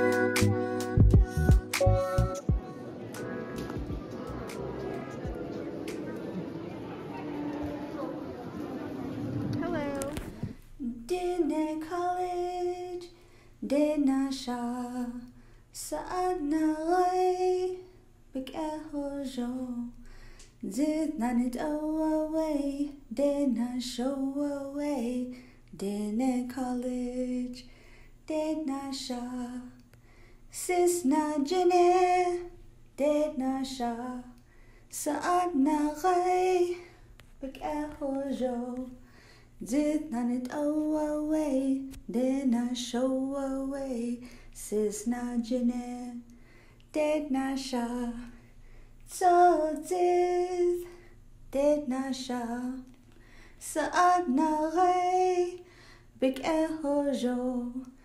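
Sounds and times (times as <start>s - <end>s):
person singing unaccompanied: 0.0s - 4.7s.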